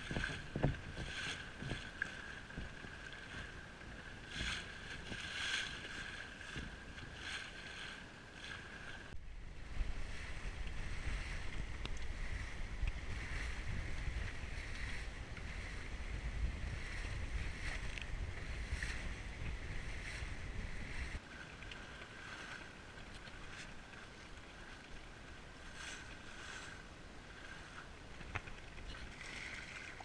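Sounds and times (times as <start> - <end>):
wind buffeting microphone: 0.0 - 21.2
water splashing along hull: 0.0 - 30.0.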